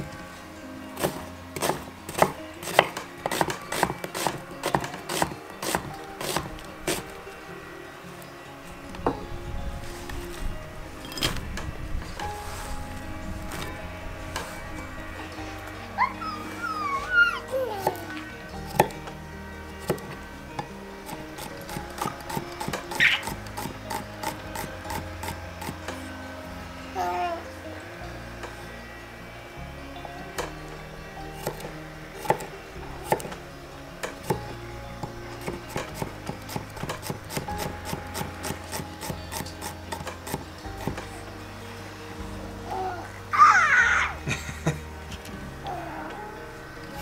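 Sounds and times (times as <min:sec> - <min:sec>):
soft background music: 0:00.0 - 0:47.0
knife chopping on wooden board: 0:01.0 - 0:07.0.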